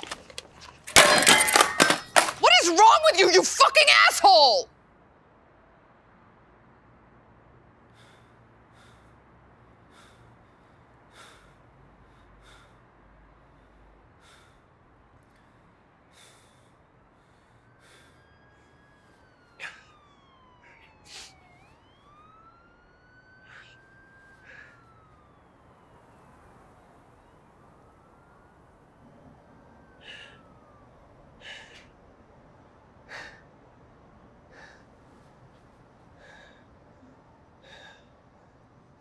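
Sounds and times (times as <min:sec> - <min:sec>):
faint siren wailing: 0:00.0 - 0:39.0.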